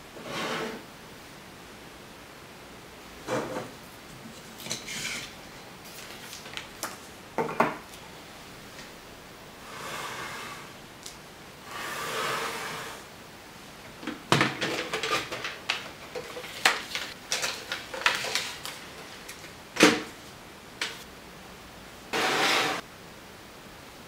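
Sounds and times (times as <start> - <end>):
paper roll rustling: 4.3 - 7.2, 14.4 - 21.0.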